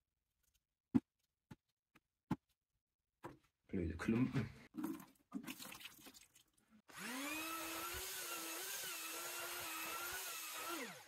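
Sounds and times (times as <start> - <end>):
electric drill mixing mortar: 6.9 - 11.0.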